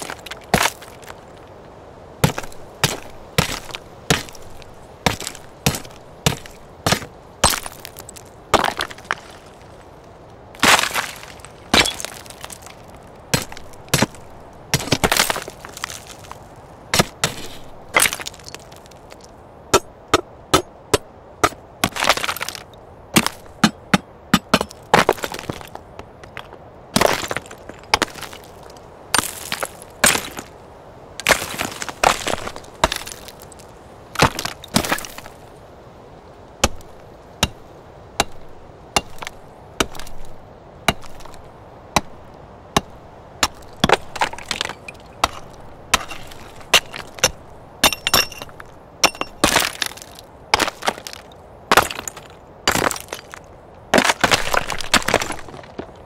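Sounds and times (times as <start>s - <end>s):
background ambience: 0.0s - 56.0s
stone fragments crumbling: 2.2s - 9.8s, 10.6s - 16.4s, 17.0s - 19.3s, 21.8s - 23.8s, 24.4s - 30.5s, 31.2s - 33.6s, 34.2s - 35.3s, 43.4s - 53.4s, 54.0s - 55.9s
stone striking stone: 19.7s - 22.0s, 23.2s - 24.8s, 38.2s - 40.1s, 40.9s - 41.4s, 42.8s - 50.0s.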